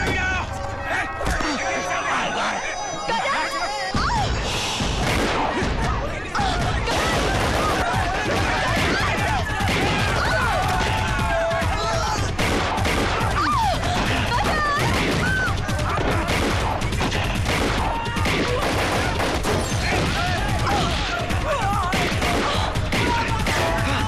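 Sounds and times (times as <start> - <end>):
men yelling: 6.1 - 12.4
rapid automatic gunfire: 6.7 - 24.0.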